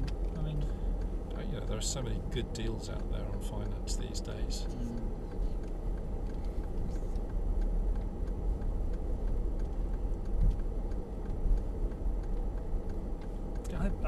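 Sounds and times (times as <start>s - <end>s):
engine and tyres rumbling: 0.0s - 14.0s
faint light ticks: 0.0s - 14.0s.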